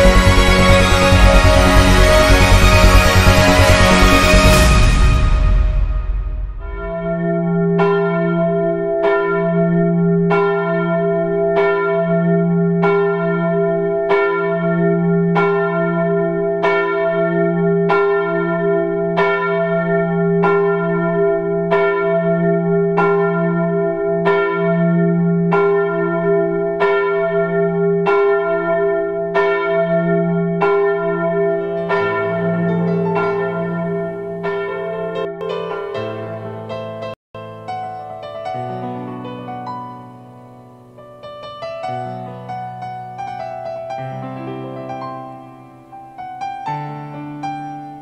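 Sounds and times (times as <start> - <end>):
church bell tolling: 0.0 - 37.1.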